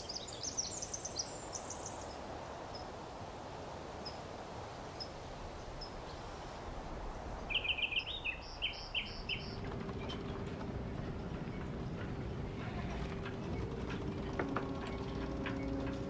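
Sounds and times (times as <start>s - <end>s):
bird song: 0.0s - 2.9s, 7.0s - 16.0s
steady background hiss: 0.0s - 16.0s
low steady hum: 5.1s - 16.0s.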